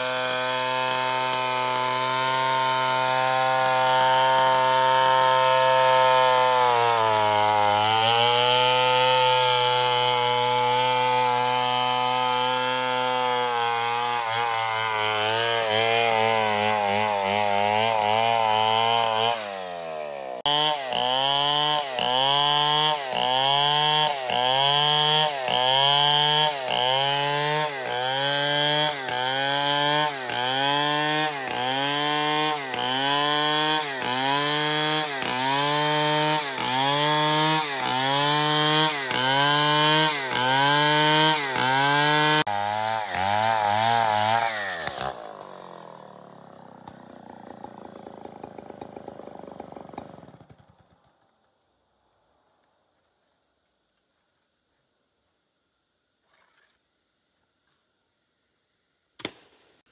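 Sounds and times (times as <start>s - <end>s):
chainsaw cutting log: 0.0s - 51.2s, 59.2s - 59.9s.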